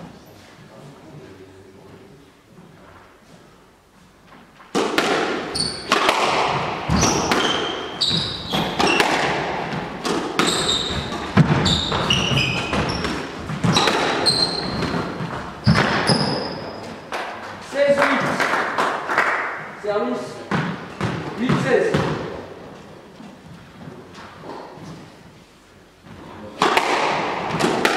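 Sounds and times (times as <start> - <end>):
squash ball cracking off rackets: 4.7 - 17.6, 26.6 - 27.9
shoes squeaking on hardwood floor: 5.4 - 6.0, 6.8 - 17.6.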